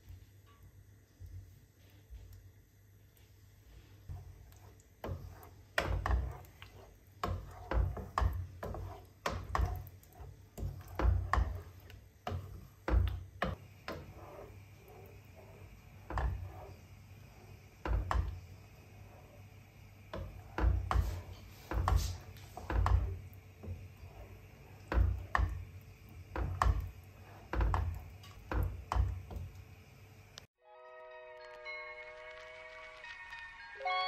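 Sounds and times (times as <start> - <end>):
wooden spoon scraping a pan: 3.6 - 29.6.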